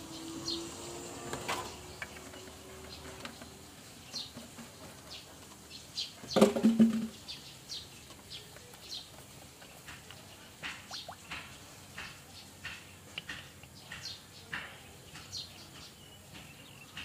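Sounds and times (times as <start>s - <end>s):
small birds chirping: 0.0s - 17.0s
plastic jug clunk and rustle: 6.2s - 7.3s.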